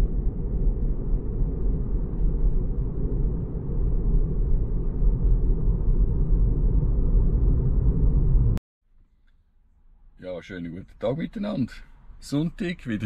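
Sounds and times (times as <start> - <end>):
road and tyre rumble: 0.0 - 8.6.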